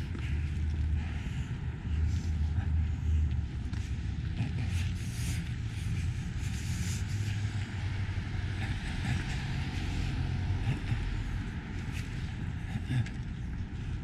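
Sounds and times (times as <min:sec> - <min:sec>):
car traffic rumble: 0:00.0 - 0:14.0.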